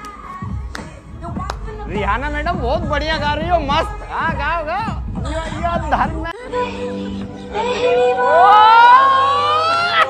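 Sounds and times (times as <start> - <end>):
music: 0.0 - 10.0.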